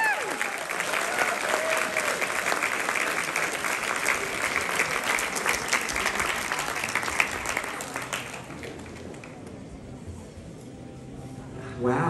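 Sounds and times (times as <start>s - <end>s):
audience clapping: 0.0s - 9.6s.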